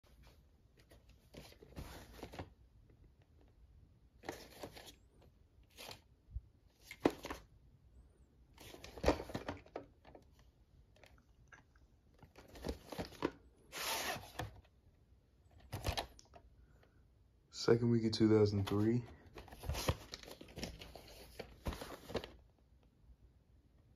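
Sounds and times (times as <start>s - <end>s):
cardboard sleeve being handled: 0.1s - 2.6s, 12.3s - 14.7s, 18.6s - 22.4s
cardboard scrape: 12.6s - 14.5s.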